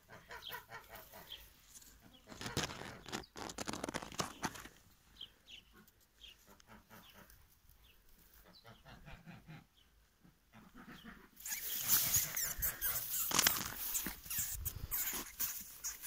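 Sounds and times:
rustling and crackling in grass: 0:00.8 - 0:04.9, 0:11.4 - 0:16.0.

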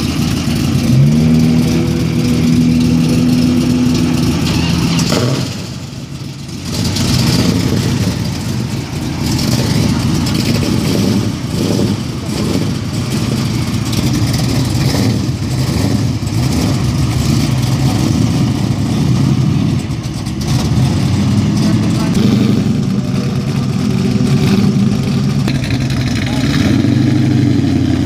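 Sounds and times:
car engine idling: 0:00.0 - 0:28.0
car pulling away slowly: 0:00.0 - 0:28.0
people talking: 0:21.5 - 0:26.9.

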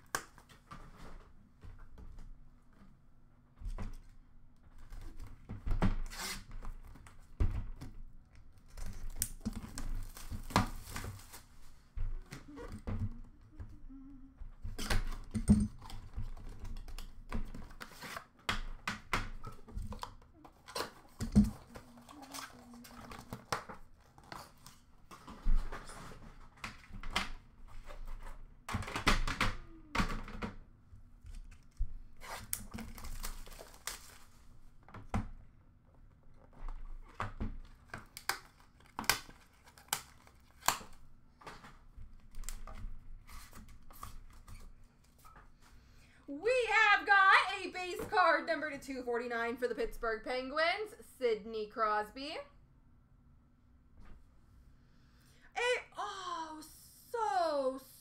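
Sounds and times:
wrapping tearing and crinkling: 0:08.5 - 0:12.7, 0:20.4 - 0:24.9, 0:31.4 - 0:34.6, 0:36.8 - 0:41.1.

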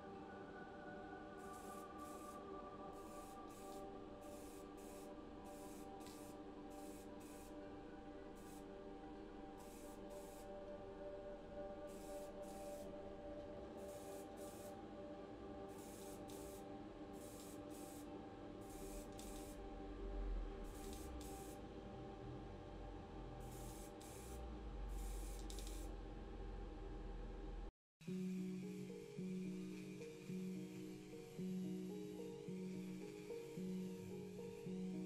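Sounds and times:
spray paint can hissing: 0:01.4 - 0:07.6, 0:08.4 - 0:08.7, 0:09.6 - 0:10.5, 0:11.9 - 0:12.9, 0:13.8 - 0:14.7, 0:15.7 - 0:16.6, 0:17.2 - 0:18.1, 0:18.7 - 0:19.6, 0:20.7 - 0:21.6, 0:23.4 - 0:25.9.

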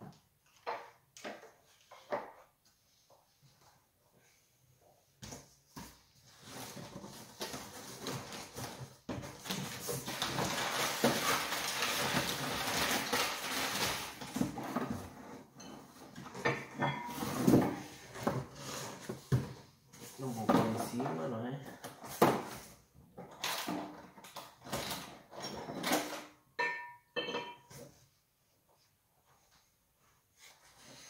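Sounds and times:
packing paper rustling: 0:06.2 - 0:15.0.

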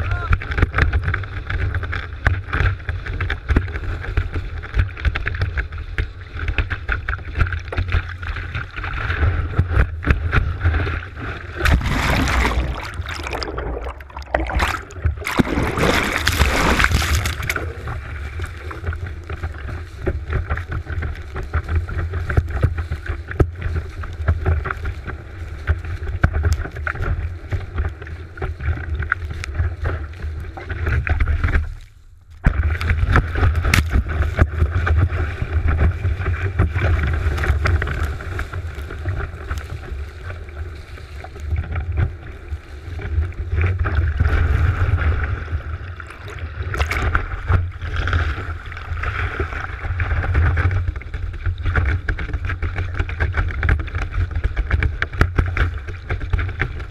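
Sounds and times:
water rushing and splashing: 0:06.8 - 0:24.1, 0:32.6 - 0:54.4
low rumble: 0:08.8 - 0:51.8.

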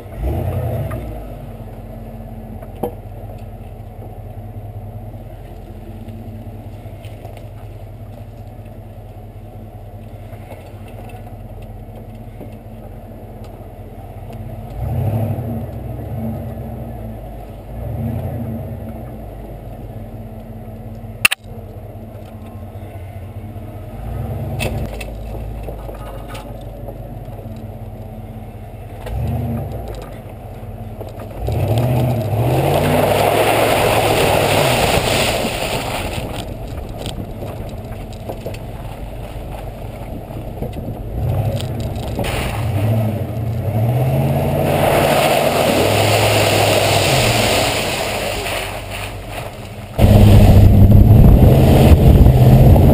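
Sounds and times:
truck engine revving: 0:00.0 - 0:02.1, 0:14.4 - 0:19.4, 0:28.8 - 0:52.9
mud and water splashing: 0:24.0 - 0:52.9.

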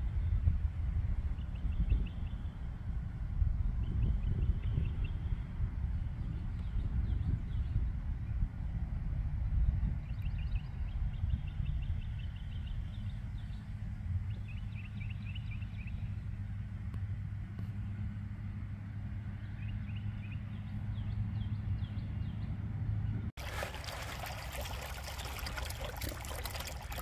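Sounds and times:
low engine hum: 0:00.0 - 0:27.0
birds chirping: 0:19.6 - 0:27.0.

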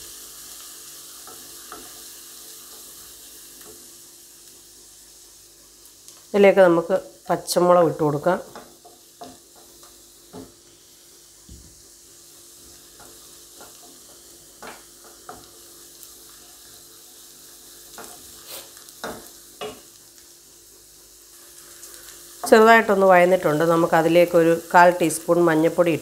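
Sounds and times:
onions sizzling in oil: 0:00.0 - 0:26.0
spatula scraping a pan: 0:17.9 - 0:19.8.

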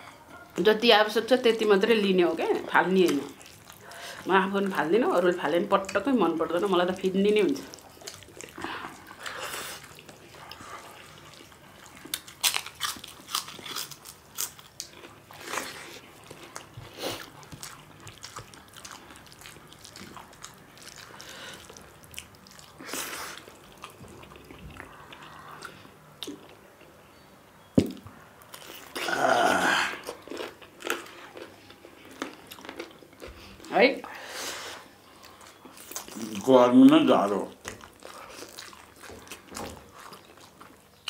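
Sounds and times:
wet chewing and mouth smacks: 0:03.0 - 0:04.3, 0:07.4 - 0:26.6, 0:37.5 - 0:41.0.

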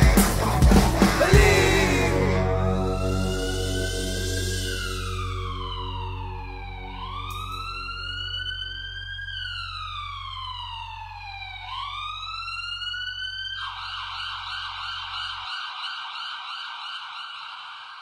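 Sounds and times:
police siren wailing: 0:01.2 - 0:18.0
low steady drone: 0:01.3 - 0:12.3.

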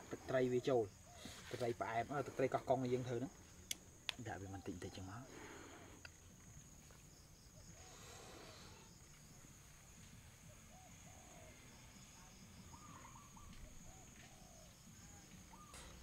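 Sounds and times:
soft bird calls: 0:00.0 - 0:06.0, 0:10.4 - 0:16.0
high-pitched insect drone: 0:04.4 - 0:16.0.

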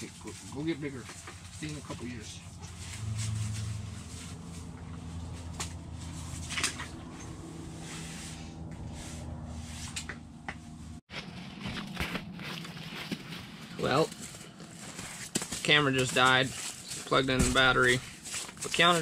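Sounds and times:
low steady hum: 0:00.0 - 0:14.9.

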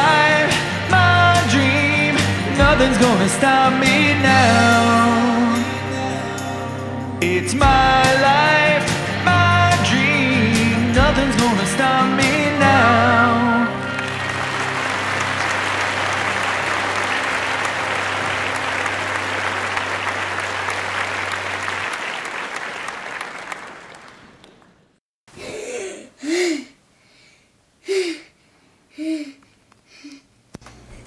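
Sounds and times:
studio audience applause: 0:13.7 - 0:24.9
girl gasping: 0:25.3 - 0:30.3.

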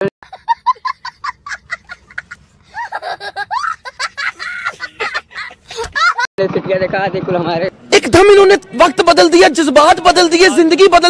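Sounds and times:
young child laughing: 0:00.2 - 0:06.3.

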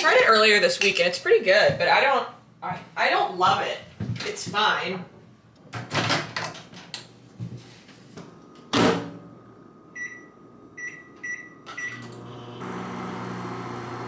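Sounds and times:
microwave humming: 0:08.5 - 0:14.0
short keypad beeps: 0:10.0 - 0:12.0.

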